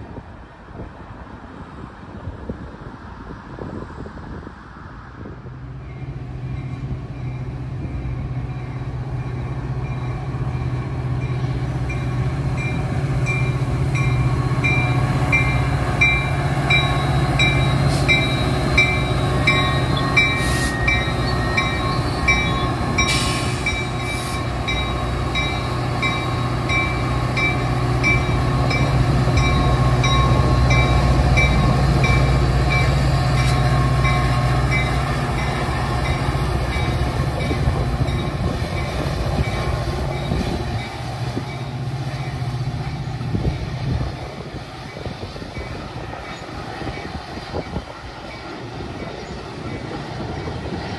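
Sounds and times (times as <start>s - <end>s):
diesel locomotive engine drone: 0.0s - 50.9s
locomotive bell ping: 24.7s - 36.2s.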